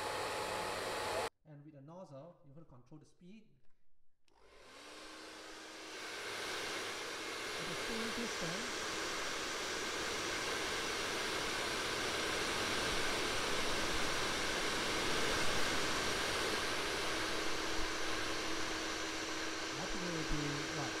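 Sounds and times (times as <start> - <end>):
hair dryer blowing air: 0.0 - 1.3, 4.3 - 21.0.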